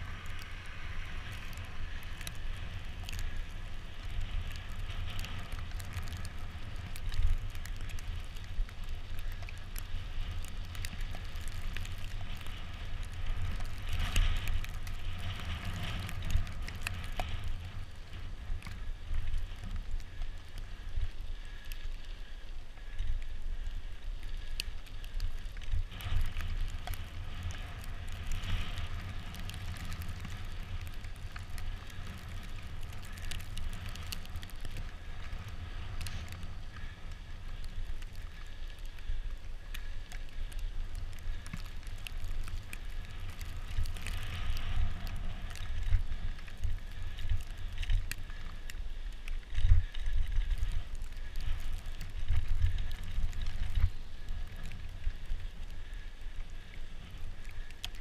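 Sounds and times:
bicycle tyres on packed snow: 0.0s - 58.0s
wind rumble on microphone: 0.0s - 58.0s.

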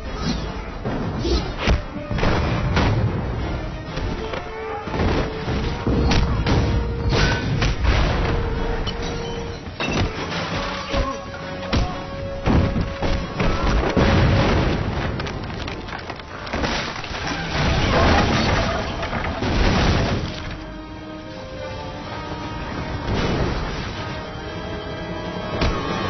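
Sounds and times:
dramatic film score: 0.0s - 26.0s
heavy thuds and crashes: 0.8s - 4.2s, 11.7s - 15.8s
wood splintering: 3.8s - 20.8s.

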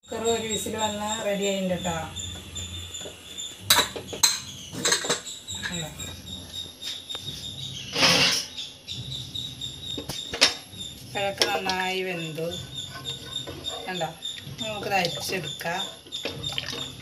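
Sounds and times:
metal lid rasping: 10.0s - 17.0s.

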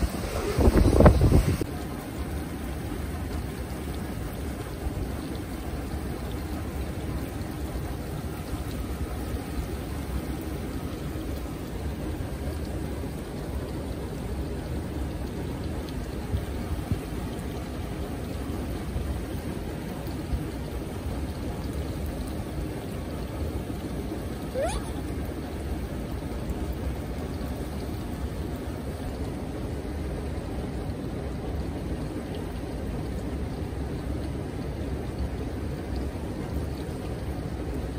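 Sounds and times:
wind buffeting microphone: 0.0s - 1.7s
flowing water: 0.0s - 37.9s.

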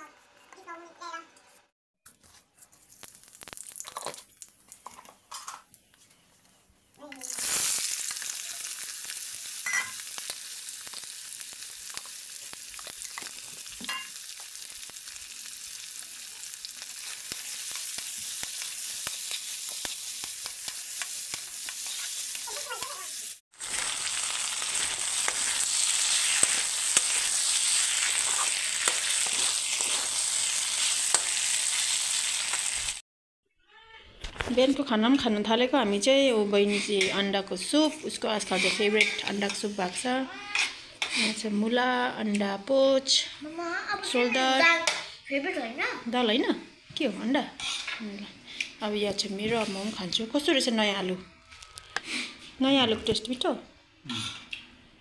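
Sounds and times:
faint crackles: 2.1s - 5.2s
potatoes sizzling in hot oil: 2.9s - 4.8s, 7.0s - 33.0s, 38.4s - 40.1s
spatula scraping and clicking on pan: 17.5s - 22.9s, 38.5s - 39.7s.

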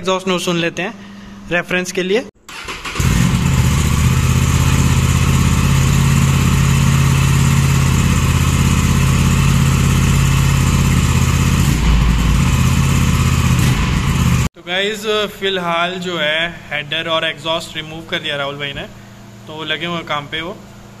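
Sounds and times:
motorcycle engine idling: 2.5s - 14.5s.

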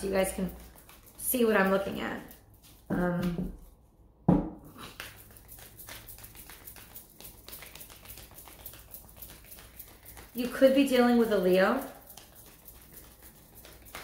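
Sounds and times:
cards shuffling clicks and rustles: 0.0s - 3.6s, 4.8s - 11.3s, 12.0s - 14.0s
cards thumping: 4.3s - 10.3s.

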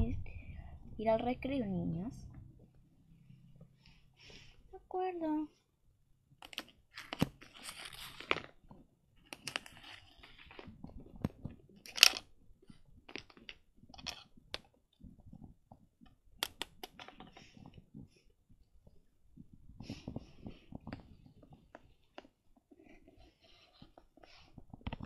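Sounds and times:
plastic toys tapping and rustling: 6.4s - 18.2s, 18.8s - 25.0s.

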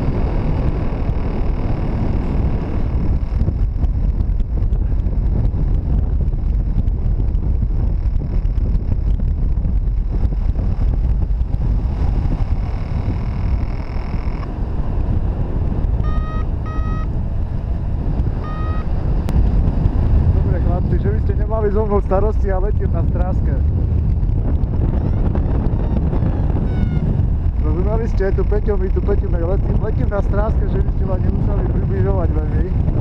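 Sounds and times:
wind buffeting microphone: 0.0s - 33.0s
short beeps: 16.0s - 17.1s, 18.4s - 18.9s.

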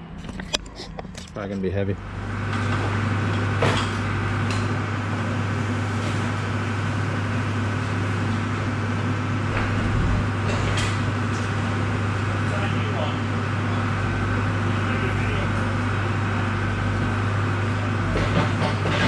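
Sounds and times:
mechanical hum: 0.0s - 19.0s.

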